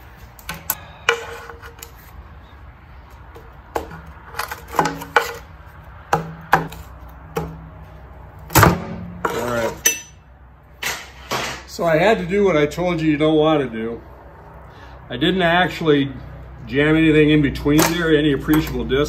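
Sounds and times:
pry bar clinking on metal: 9.8s - 10.2s.

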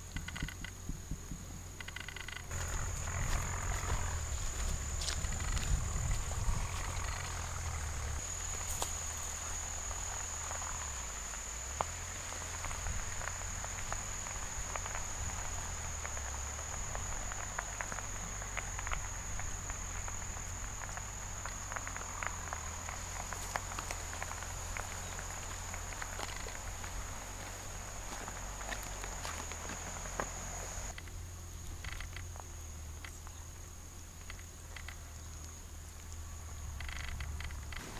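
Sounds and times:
low rumble: 0.0s - 29.9s
faint light ticks: 34.1s - 36.2s.

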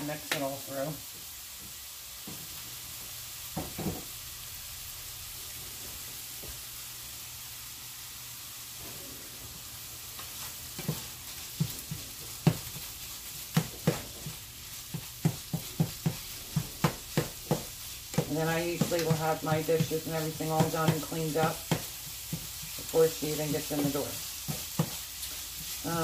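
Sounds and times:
meat sizzling in a pan: 0.0s - 26.0s
utensil knocking against pan: 15.0s - 19.9s.

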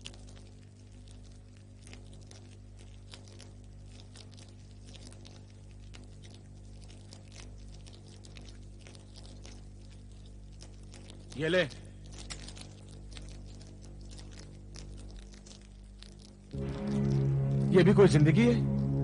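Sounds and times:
steady low hum: 0.0s - 19.0s
campfire crackling: 11.2s - 19.0s.

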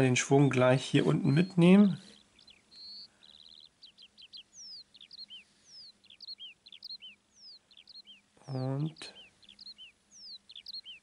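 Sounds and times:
small bird singing: 0.0s - 11.0s.

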